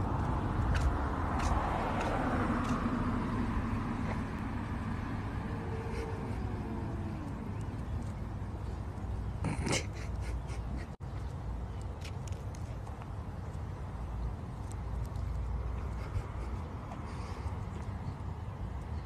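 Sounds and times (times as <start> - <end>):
car passing: 0.0 - 9.4.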